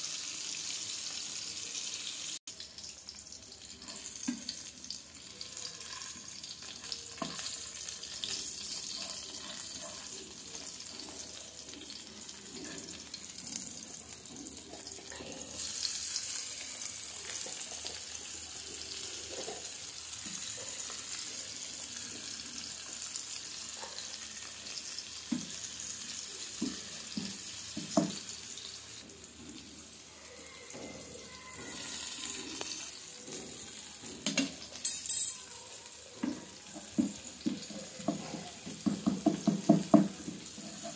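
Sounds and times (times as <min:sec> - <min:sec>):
fish frying in hot oil: 0:00.0 - 0:34.8, 0:35.4 - 0:40.9
wooden spatula knocking on pan: 0:26.6 - 0:28.3, 0:36.2 - 0:40.6.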